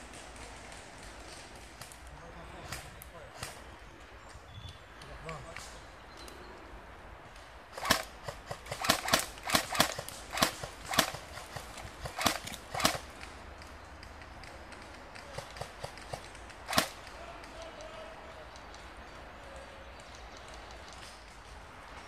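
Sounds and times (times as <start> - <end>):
airsoft gun shots: 7.8 - 13.1, 15.3 - 17.0.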